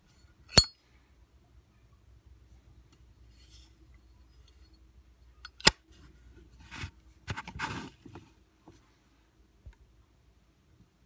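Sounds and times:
scraping handling noise: 5.6s - 8.8s.

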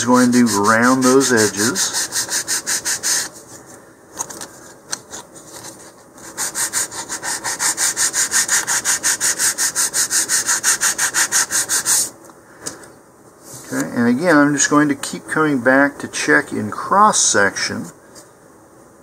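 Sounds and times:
sandpaper rubbing on wood: 0.0s - 3.4s, 6.2s - 12.1s.

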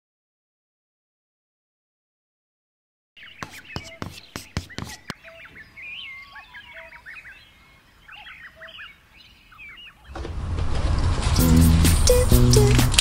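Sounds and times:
songbirds chirping: 3.2s - 10.3s
loud music: 11.4s - 13.0s
sharp clicks: 12.0s - 13.0s.

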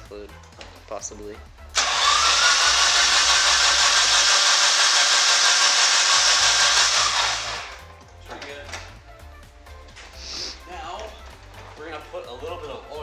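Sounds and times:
starter motor cranking: 1.8s - 7.9s.

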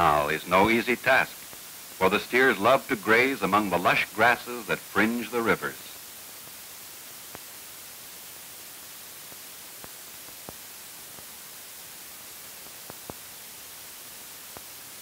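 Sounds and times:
film soundtrack hiss: 0.0s - 15.0s
faint clicks and pops: 12.6s - 13.3s.

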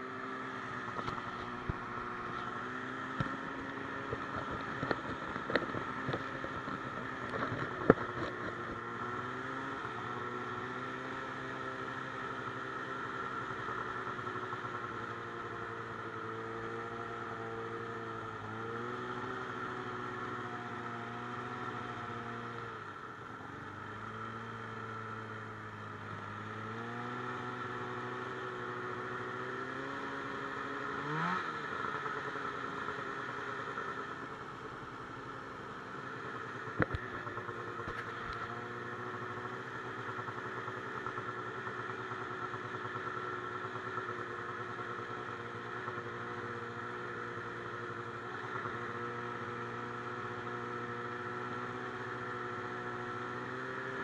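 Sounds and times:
off-road vehicle engine running: 0.0s - 54.0s.

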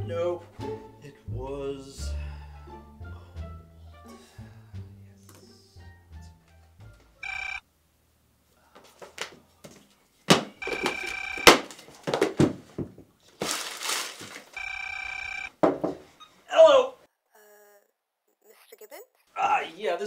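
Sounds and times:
telephone ringing: 7.2s - 7.6s, 10.6s - 11.8s, 14.6s - 15.6s
paper rustling and crumpling: 13.3s - 14.6s
sharp knocks: 15.6s - 16.0s.

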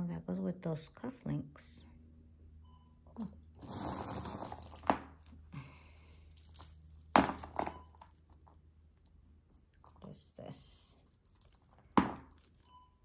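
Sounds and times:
metal jewelry rattling and clinking: 3.4s - 13.0s.

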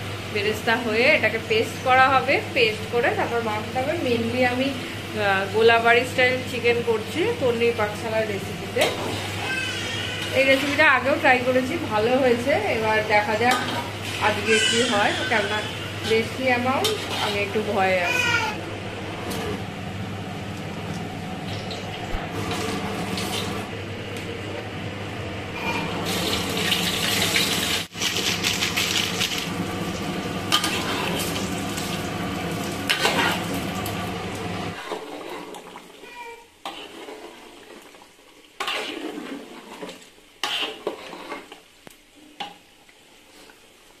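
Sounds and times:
food frying: 25.7s - 44.0s.

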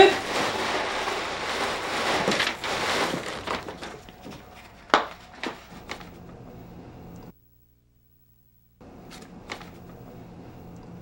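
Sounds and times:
package rustling: 0.0s - 6.1s.

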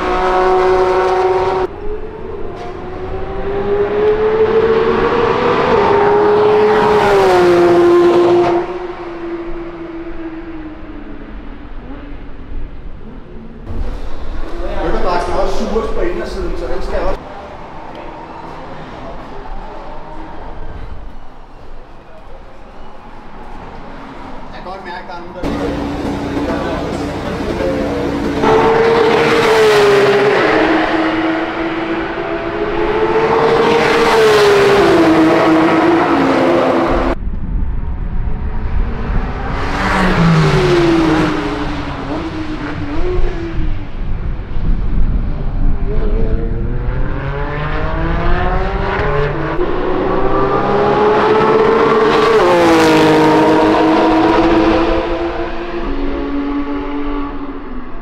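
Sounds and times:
race car passing by: 0.0s - 10.6s, 13.7s - 37.2s, 38.3s - 44.8s, 45.4s - 57.9s
race car accelerating howl: 0.0s - 21.5s, 25.4s - 37.2s, 37.9s - 44.5s, 45.2s - 58.0s
sports car engine revving: 25.4s - 37.2s, 45.2s - 57.8s.

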